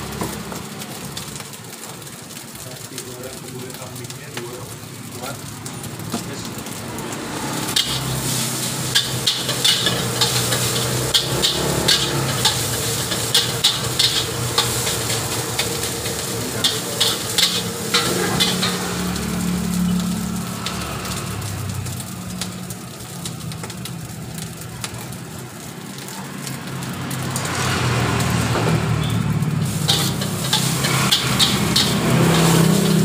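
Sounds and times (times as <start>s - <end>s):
rice sizzling: 0.0s - 33.0s
metal spatula clanking on wok: 7.7s - 18.9s, 29.8s - 33.0s.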